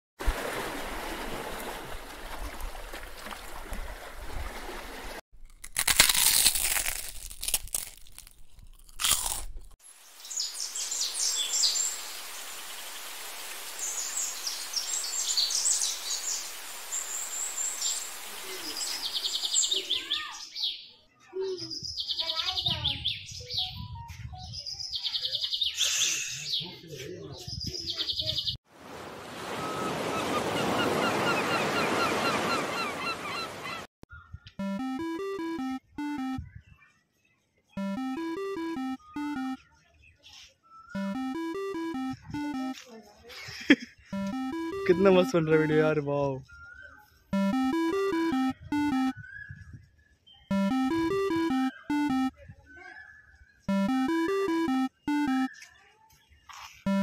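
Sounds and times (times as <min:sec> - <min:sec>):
birds chirping: 0:13.7 - 0:23.8, 0:29.6 - 0:42.8, 0:44.1 - 0:57.0
voices: 0:44.2 - 0:46.4.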